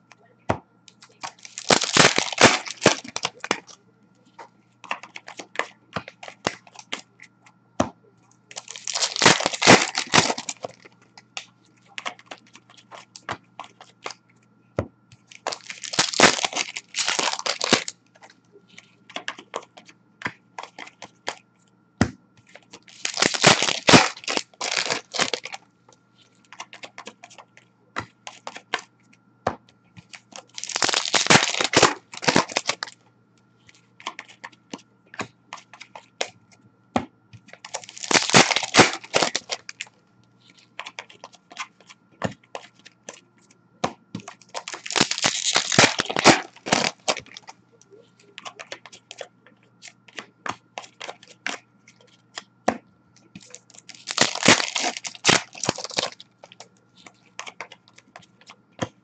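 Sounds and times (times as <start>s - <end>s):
cards clicking and rustling: 0.9s - 7.3s, 8.4s - 14.2s, 15.1s - 21.4s, 22.4s - 25.6s, 26.2s - 29.0s, 30.0s - 33.0s, 33.6s - 36.3s, 37.4s - 59.0s
foil wrappers tearing and crinkling: 1.0s - 3.6s, 8.5s - 10.8s, 15.4s - 17.9s, 22.8s - 25.6s, 30.3s - 33.0s, 37.6s - 39.9s, 44.4s - 47.5s, 53.4s - 56.6s.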